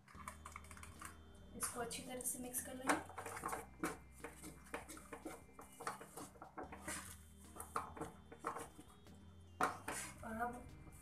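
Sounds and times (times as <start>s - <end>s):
spatula scraping oats in pan: 3.1s - 9.0s, 9.6s - 10.3s.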